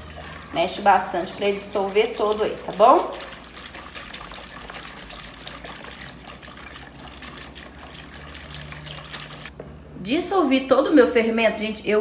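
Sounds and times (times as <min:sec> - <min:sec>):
milk sloshing: 0:00.0 - 0:09.5
whisk stirring milk: 0:00.0 - 0:09.5
whisk ticking on bowl: 0:00.0 - 0:09.5.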